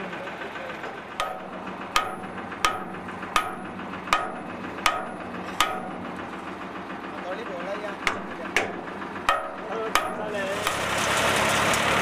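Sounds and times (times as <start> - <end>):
hammer striking metal: 1.2 - 6.3, 8.0 - 10.9.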